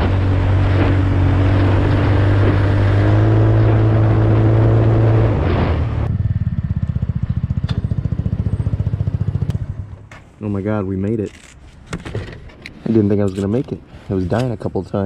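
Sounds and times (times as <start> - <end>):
wind and road noise: 0.0 - 15.0.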